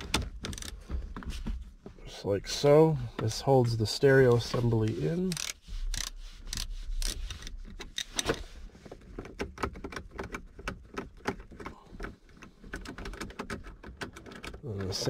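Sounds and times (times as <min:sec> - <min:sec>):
hand tool clicking on screws: 0:04.9 - 0:08.2.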